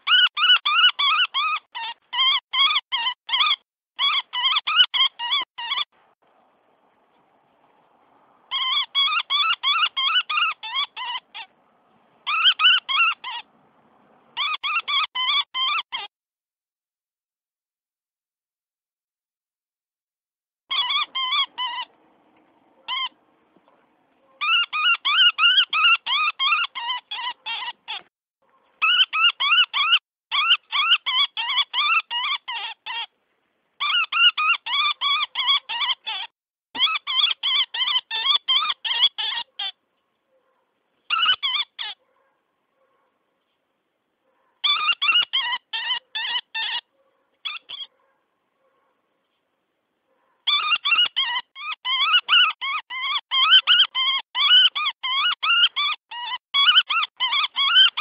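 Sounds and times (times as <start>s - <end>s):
woodpecker distress call: 0.0s - 5.9s, 8.5s - 11.5s, 12.2s - 13.5s, 14.4s - 16.1s, 20.7s - 22.0s, 22.8s - 23.2s, 24.4s - 28.1s, 28.8s - 33.1s, 33.8s - 39.8s, 41.0s - 42.0s, 44.6s - 48.0s, 50.5s - 58.0s.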